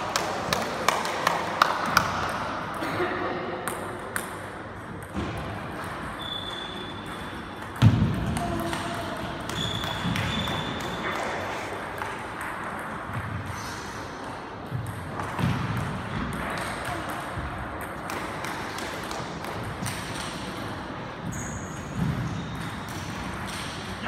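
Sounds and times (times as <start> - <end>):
table tennis balls clicking: 3.6 - 13.6, 14.2 - 21.0.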